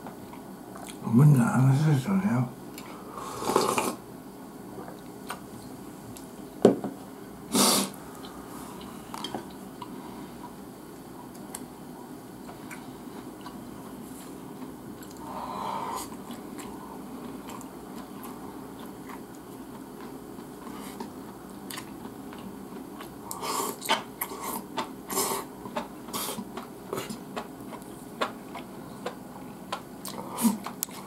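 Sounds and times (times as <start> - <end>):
person chewing: 0.2 - 1.0, 7.6 - 31.0.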